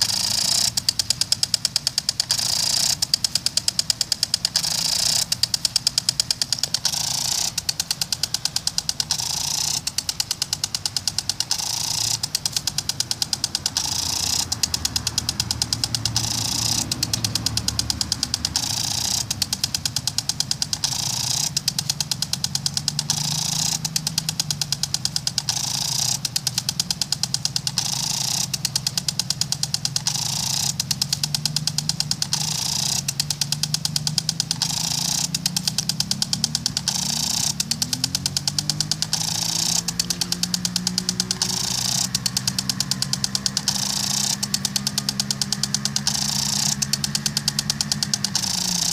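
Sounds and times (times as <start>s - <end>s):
sprinkler clicking rapidly: 0.0s - 48.9s
water spray hiss: 21.7s - 48.9s.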